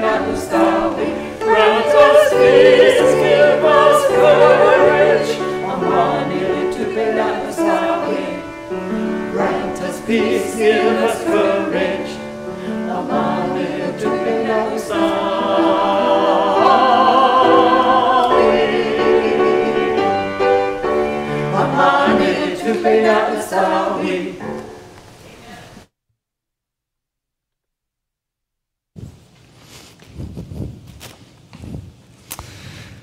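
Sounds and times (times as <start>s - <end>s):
choir singing a hymn: 0.0s - 24.8s.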